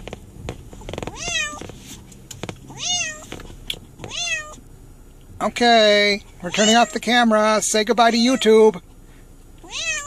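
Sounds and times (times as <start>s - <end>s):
cat meowing: 1.0s - 1.7s, 2.7s - 3.4s, 4.0s - 4.6s, 6.5s - 7.0s, 9.6s - 10.0s.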